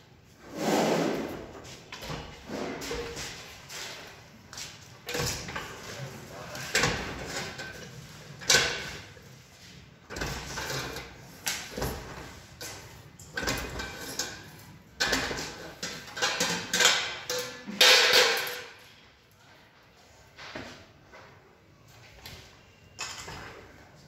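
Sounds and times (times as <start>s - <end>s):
sheet metal clanking and scraping: 10.0s - 18.8s.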